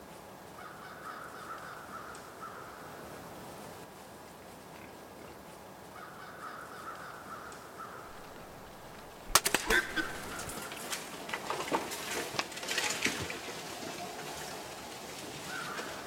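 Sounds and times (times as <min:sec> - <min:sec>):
animals rustling in dry leaves: 0:00.0 - 0:16.0
sharp crack: 0:08.1 - 0:11.5.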